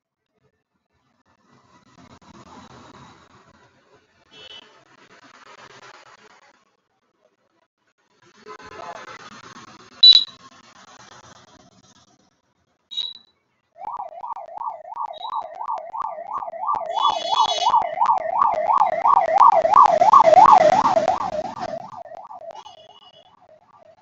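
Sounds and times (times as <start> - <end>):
fast warbling siren: 10.0 - 10.3, 13.8 - 24.0
short high electronic beeps: 10.0 - 10.4, 12.9 - 13.3, 13.9 - 23.4
rushing noise: 13.8 - 22.8.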